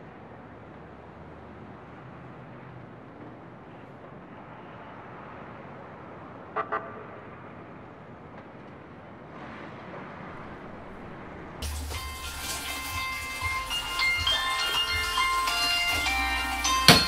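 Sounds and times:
city traffic noise: 0:00.0 - 0:17.0
car horn toots: 0:06.6 - 0:07.2.

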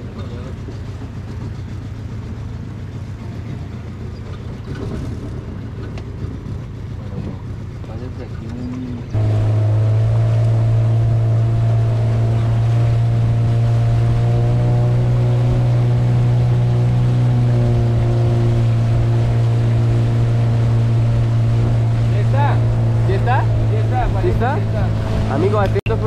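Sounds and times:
boat engine droning: 0:00.0 - 0:26.0.

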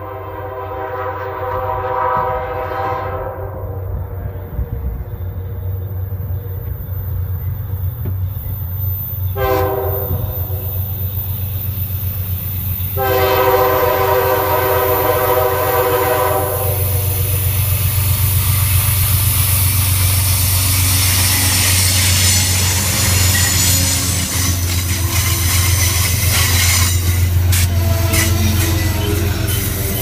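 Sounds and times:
locomotive air horn: 0:00.0 - 0:03.8, 0:09.3 - 0:10.9, 0:12.9 - 0:17.7, 0:21.0 - 0:30.0
train wheels rolling on rails: 0:00.0 - 0:30.0.

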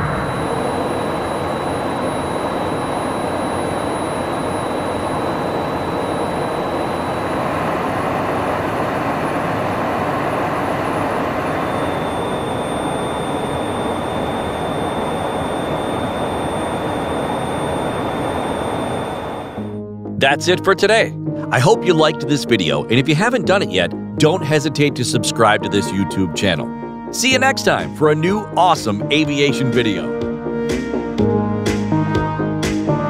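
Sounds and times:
jet engines roaring: 0:00.0 - 0:19.6
faint high whine: 0:00.0 - 0:30.1.

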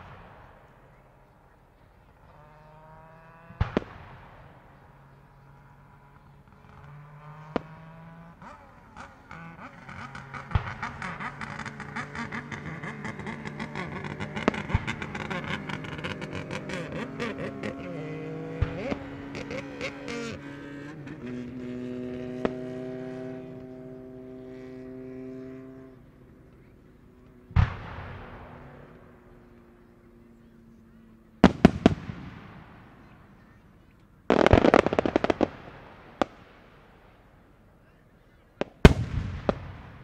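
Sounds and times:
loud firework bangs: 0:03.5 - 0:04.8, 0:10.4 - 0:17.6, 0:27.5 - 0:28.9, 0:31.4 - 0:33.2, 0:34.3 - 0:37.3, 0:38.6 - 0:40.0
fireworks crackling: 0:10.0 - 0:20.5, 0:31.4 - 0:33.4, 0:34.2 - 0:37.7, 0:38.4 - 0:40.0.

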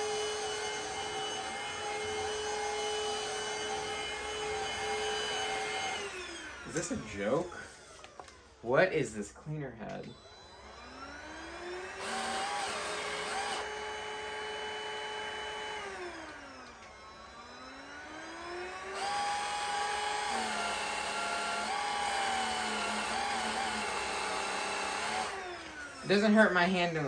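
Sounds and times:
vacuum motor whine: 0:00.0 - 0:08.9, 0:09.8 - 0:27.0.

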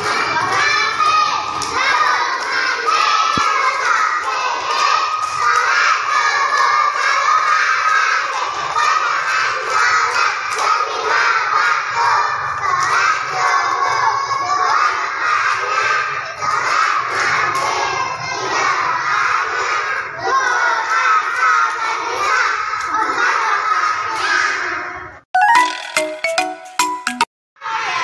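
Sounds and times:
children shouting: 0:00.0 - 0:25.2, 0:27.6 - 0:28.0
hand claps: 0:03.3 - 0:10.8.

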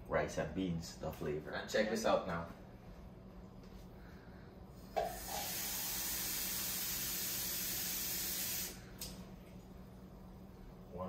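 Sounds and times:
faucet water running into cup: 0:05.0 - 0:08.8.

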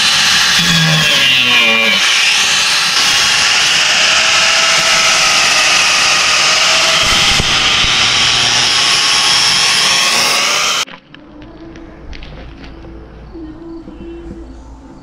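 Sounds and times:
angle grinder cutting steel: 0:00.0 - 0:10.9.

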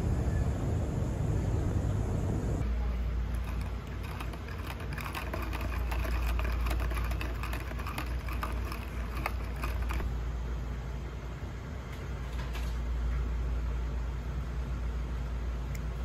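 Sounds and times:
steady low hum: 0:00.0 - 0:16.0
typing on computer keyboard: 0:03.4 - 0:10.1.

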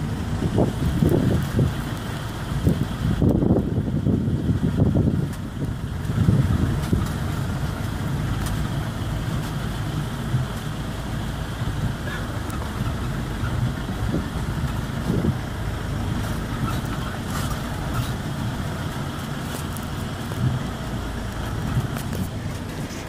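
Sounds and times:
vehicle engine running: 0:00.0 - 0:23.0.

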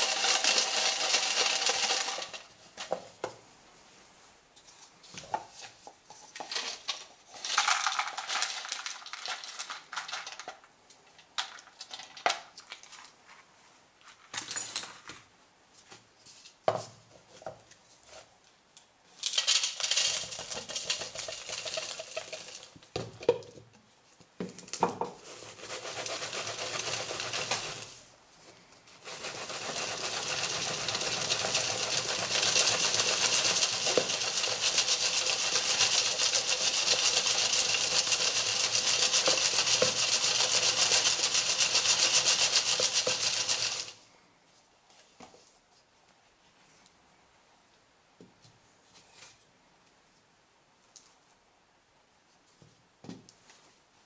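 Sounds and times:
charcoal rattling in sieve: 0:00.0 - 0:03.0, 0:05.6 - 0:10.7, 0:11.3 - 0:13.0, 0:19.2 - 0:23.0, 0:24.6 - 0:28.0, 0:29.0 - 0:44.0.

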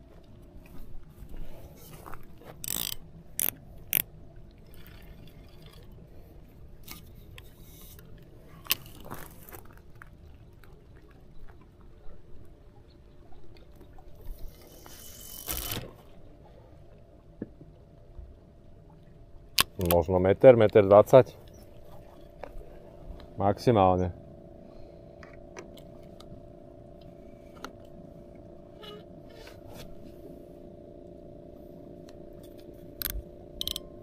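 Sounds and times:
fishing reel clicks: 0:02.6 - 0:04.1, 0:14.6 - 0:15.9, 0:19.6 - 0:20.0, 0:33.0 - 0:34.0
scraping rustle: 0:14.4 - 0:16.1.

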